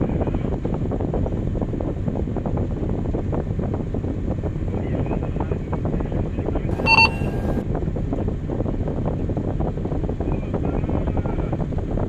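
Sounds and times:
excavator engine and hydraulics: 6.7s - 7.6s
short electronic beep: 6.7s - 7.6s.

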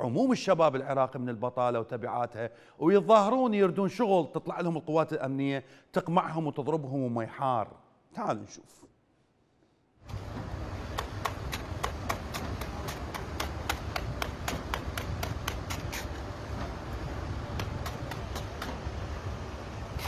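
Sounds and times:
rapid sharp clicks: 10.9s - 16.2s, 17.5s - 18.9s.

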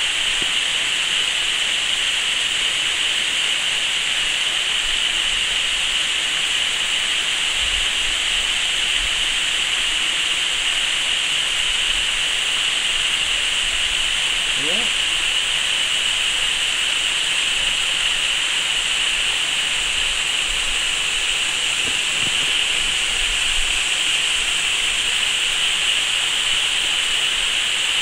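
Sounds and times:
waterfall rushing: 0.0s - 28.0s.

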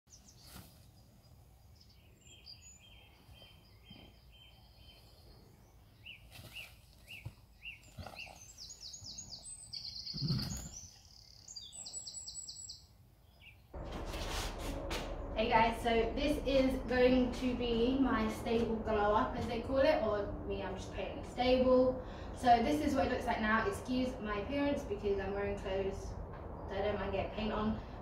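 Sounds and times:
birds chirping and trilling: 0.1s - 13.9s
low background rumble: 13.7s - 28.0s.

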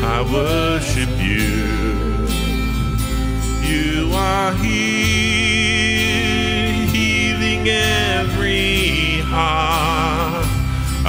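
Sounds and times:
woman and man singing: 0.0s - 2.7s, 3.6s - 10.7s
acoustic and electric guitar: 0.0s - 11.0s.

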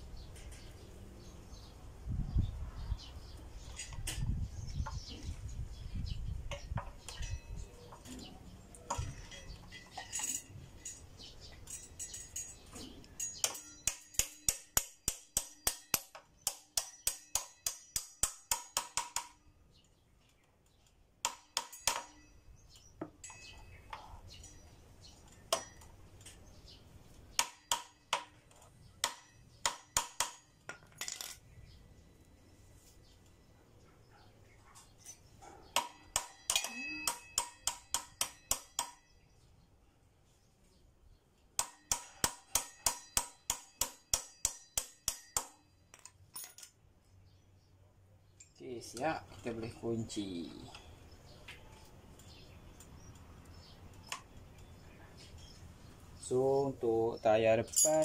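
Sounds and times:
metal tools clicking and tapping: 6.5s - 19.4s, 20.3s - 31.5s, 34.8s - 39.3s, 41.6s - 46.8s, 48.4s - 49.5s, 57.6s - 58.0s.

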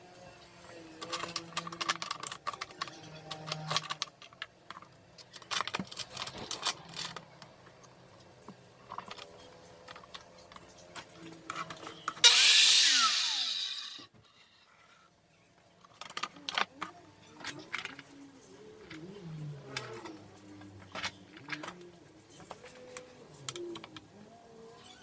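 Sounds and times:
circular saw whine: 12.2s - 14.1s.

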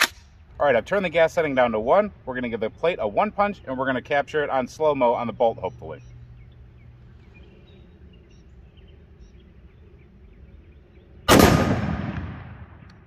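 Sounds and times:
rifle shot echoing: 0.0s - 0.3s, 11.3s - 13.0s.

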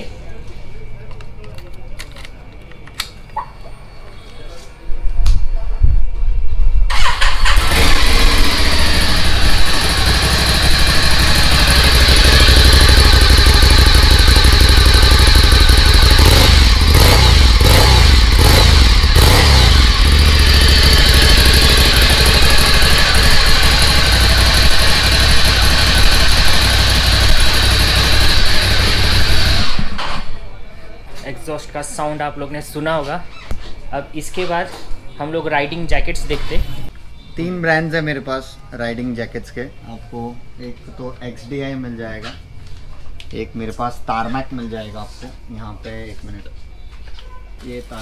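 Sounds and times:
motorcycle engine idling and revving: 6.9s - 30.4s.

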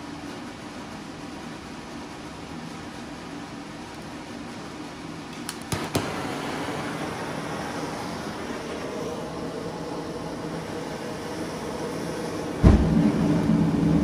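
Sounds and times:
electric blower fan rushing: 0.0s - 14.0s
propane torch igniter clicks: 5.3s - 7.0s.

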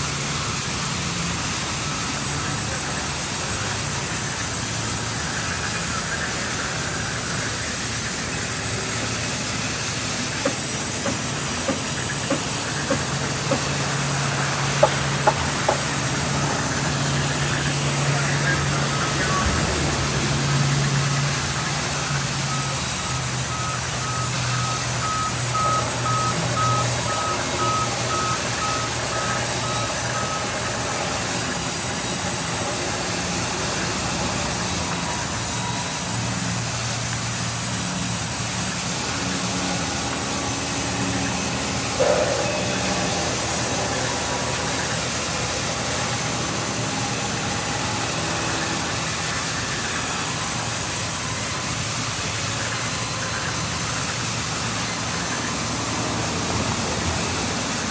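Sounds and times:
band saws and machinery humming: 0.0s - 57.9s
short electronic beeps: 22.5s - 30.8s.

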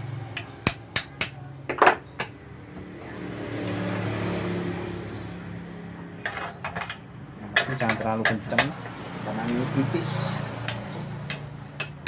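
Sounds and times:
vehicle passing by: 2.3s - 6.4s, 7.2s - 11.8s.

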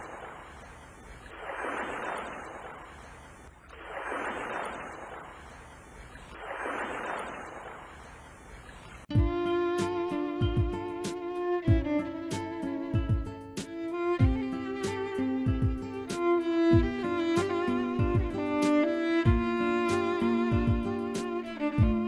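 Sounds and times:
rushing noise like waves: 0.0s - 9.1s
violin music: 9.1s - 22.0s.

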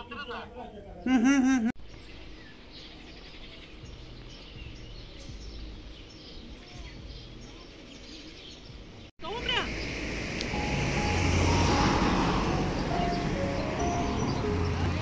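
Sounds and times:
birds chirping faintly: 0.0s - 15.0s
woman's voice: 9.2s - 9.8s.

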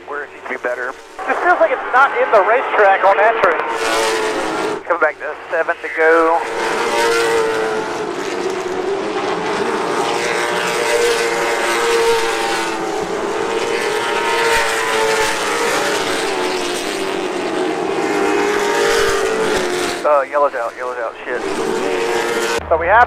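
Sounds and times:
race car engines droning: 0.0s - 23.0s.

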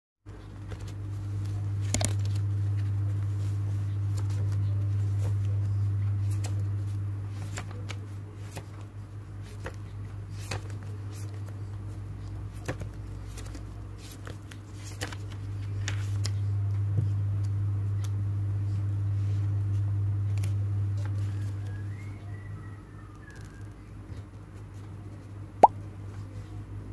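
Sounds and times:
steady low hum: 0.3s - 26.9s
paper pages rustling: 0.6s - 16.4s.

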